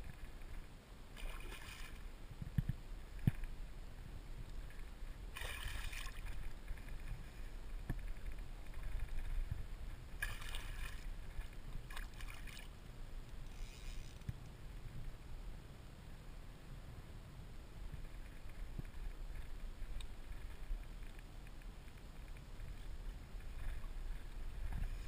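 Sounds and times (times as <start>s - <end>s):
wind rumble on microphone: 0.0s - 25.0s
fish splashing in water: 5.3s - 6.4s.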